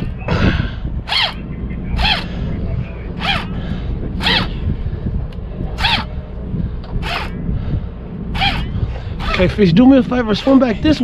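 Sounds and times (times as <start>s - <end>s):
steady low rumble: 0.0s - 11.0s
fishing reel squeaking: 1.0s - 2.3s, 3.1s - 3.6s, 4.2s - 4.6s, 5.8s - 6.1s, 7.0s - 7.4s, 8.3s - 9.6s.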